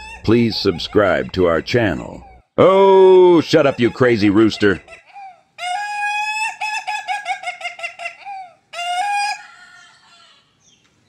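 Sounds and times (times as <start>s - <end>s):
rooster crowing like laughter: 3.6s - 10.5s.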